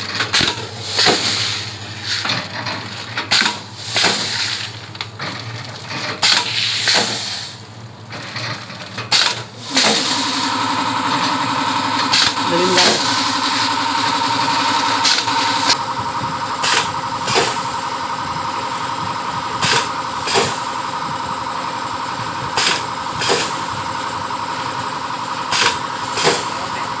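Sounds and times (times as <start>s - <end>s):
packing machine hum and whine: 0.0s - 27.0s
pneumatic cylinders firing: 0.1s - 2.3s, 3.2s - 4.9s, 6.1s - 7.7s, 8.4s - 15.8s, 16.6s - 17.9s, 19.6s - 20.8s, 22.5s - 23.9s, 25.5s - 26.7s.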